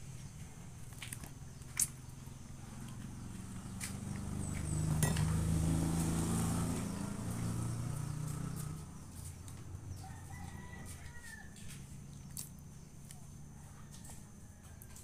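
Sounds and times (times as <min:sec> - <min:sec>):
distant rooster crowing: 0:09.8 - 0:12.0, 0:13.4 - 0:15.0.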